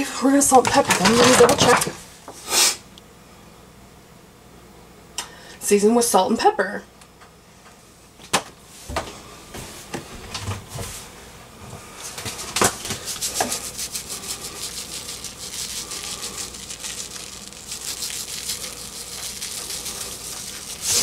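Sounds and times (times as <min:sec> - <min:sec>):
gritty rasping of seasoning dispensed: 0:13.0 - 0:21.0.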